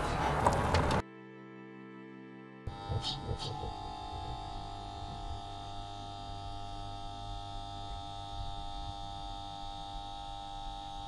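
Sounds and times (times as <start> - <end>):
electrical hum and whine: 2.7 - 11.0.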